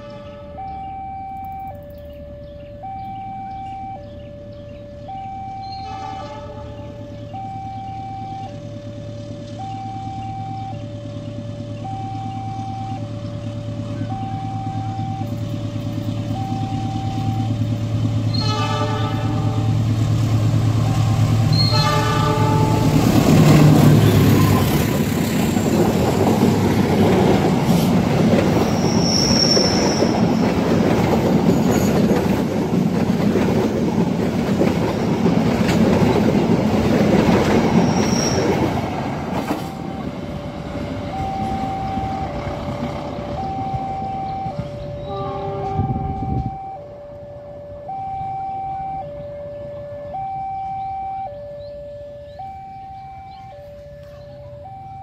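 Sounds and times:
train horn blasts: 0.0s - 0.8s, 5.6s - 7.2s, 18.3s - 19.9s, 21.5s - 24.7s, 44.4s - 47.2s
two-tone warning alarm: 0.0s - 19.8s, 21.4s - 24.9s, 37.4s - 55.0s
train engine rumble: 0.0s - 55.0s
coaches clattering on rails: 21.4s - 46.6s
wheel squeals: 27.7s - 30.6s, 31.4s - 32.4s, 37.4s - 40.2s.

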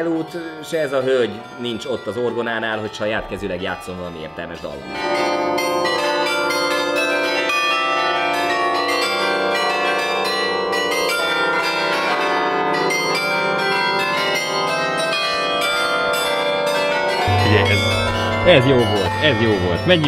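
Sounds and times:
carillon bells playing a tune: 5.6s - 20.0s.

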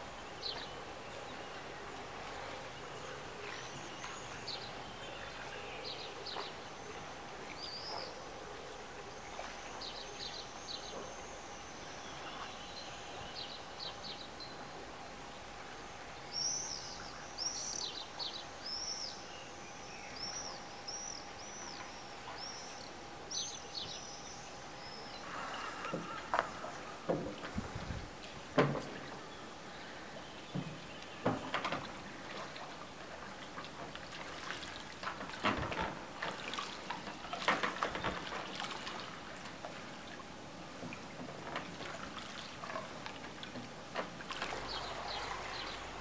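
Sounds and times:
birds chirping: 0.0s - 35.0s, 44.3s - 46.0s
faint steady tone: 0.0s - 35.3s
outdoor background hiss: 0.0s - 46.0s.

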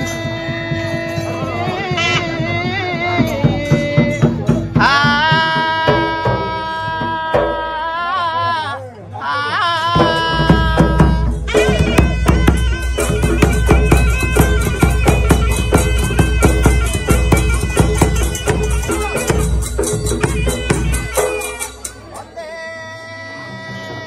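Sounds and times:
man singing long notes: 0.0s - 16.6s
barrel drums beaten fast: 10.0s - 21.9s.

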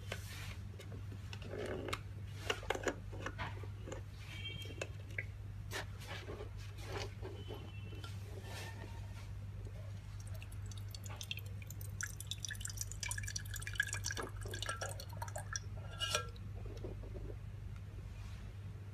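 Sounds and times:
water dripping and splashing: 10.0s - 15.7s.

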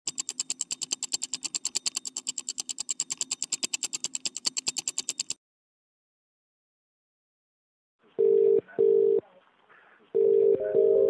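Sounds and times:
fast keyboard typing: 0.1s - 5.4s.

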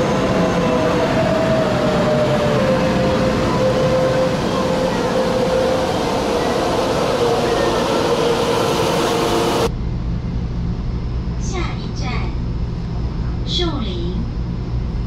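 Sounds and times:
train passing platform: 0.0s - 11.5s.

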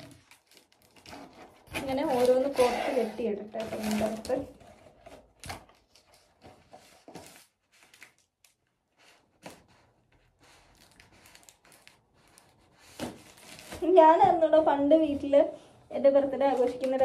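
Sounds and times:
balloons and ribbon rustling: 0.0s - 17.0s.

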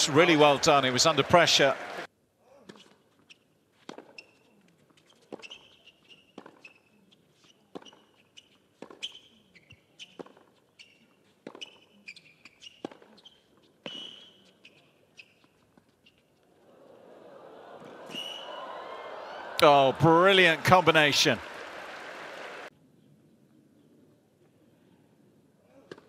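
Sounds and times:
shoe squeaks on court: 2.7s - 16.4s
racket striking tennis ball: 5.3s - 6.7s, 8.8s - 9.3s, 10.0s - 10.5s, 12.7s - 13.2s.

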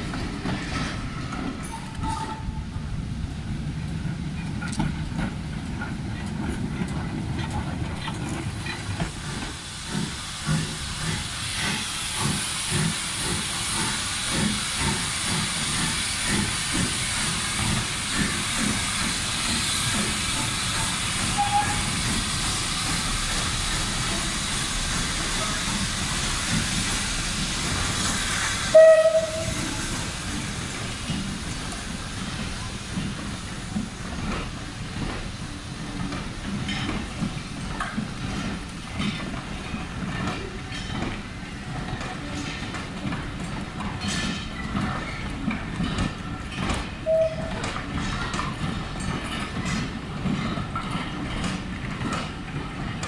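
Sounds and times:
steam locomotive chuffing: 0.0s - 53.0s
steady steam hiss: 2.6s - 53.0s
steam whistle blast: 21.3s - 21.9s, 28.7s - 29.6s, 47.0s - 47.6s.

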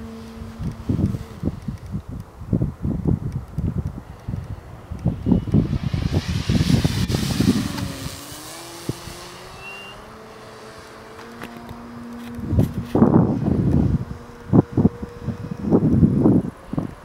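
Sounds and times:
wind buffeting microphone: 0.0s - 17.0s
model plane motor whining: 5.0s - 16.9s.

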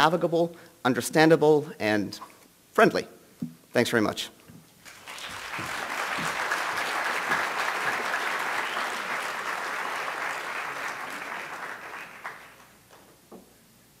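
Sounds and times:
audience applauding: 4.8s - 13.0s.

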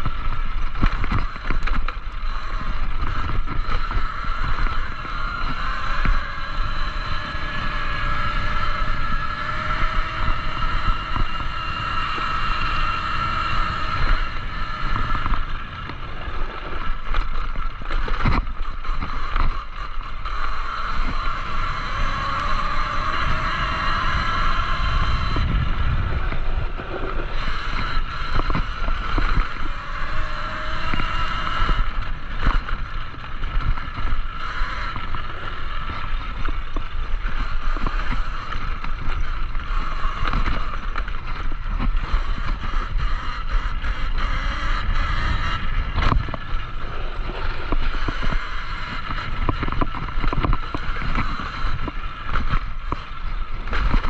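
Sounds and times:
bike knocking and rattling: 0.0s - 54.0s
electric motor whine: 0.0s - 54.0s
wind on microphone: 0.0s - 54.0s.

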